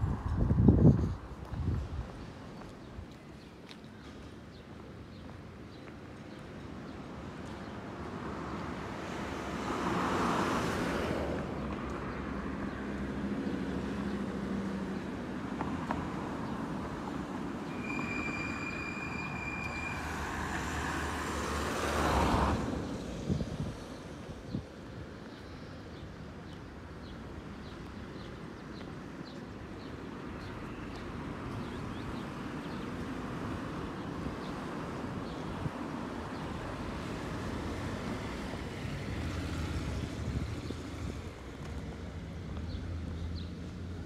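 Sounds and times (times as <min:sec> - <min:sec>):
vehicles passing by: 0:00.0 - 0:44.0
high steady squeal: 0:17.7 - 0:20.3.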